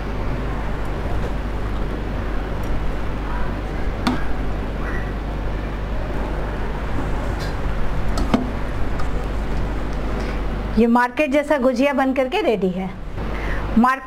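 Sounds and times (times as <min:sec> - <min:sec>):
low hum: 0:00.0 - 0:11.2.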